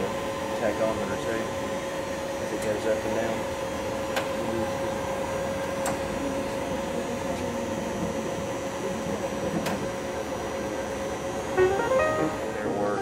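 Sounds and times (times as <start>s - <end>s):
lathe machine hum and whine: 0.0s - 11.6s.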